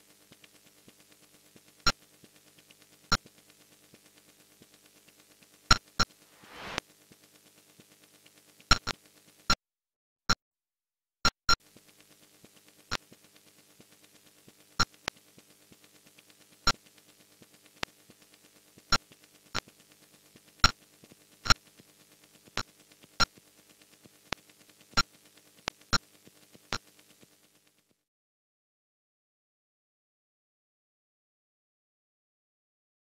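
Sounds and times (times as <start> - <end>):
sharp electronic clicks: 8.7 - 9.0.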